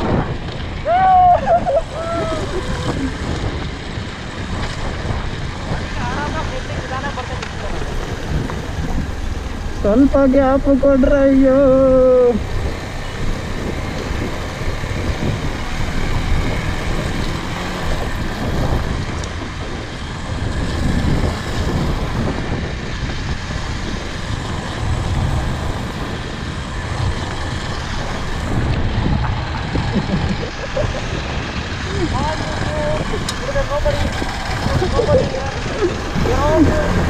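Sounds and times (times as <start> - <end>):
motorcycle riding: 0.0 - 37.0.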